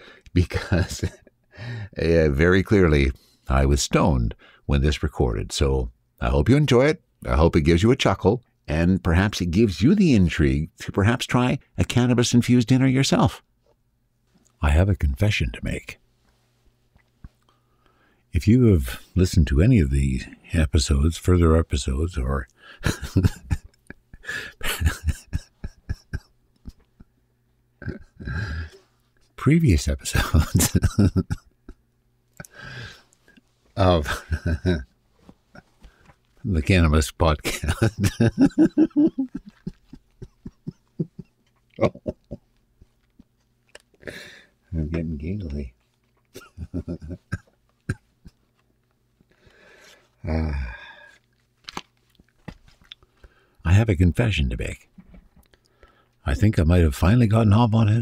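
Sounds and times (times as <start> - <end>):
man mumbling: 24.2 - 26.3, 27.8 - 28.8, 29.5 - 31.4, 33.8 - 34.8, 37.2 - 42.4, 46.6 - 48.0, 50.2 - 51.0, 56.3 - 58.0.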